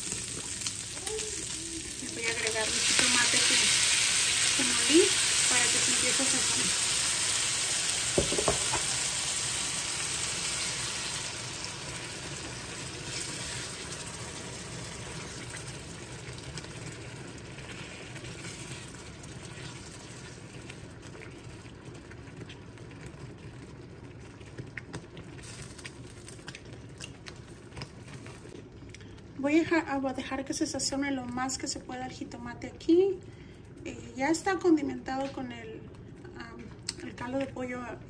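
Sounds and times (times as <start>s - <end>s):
food sizzling in a frying pan: 0.0s - 20.8s.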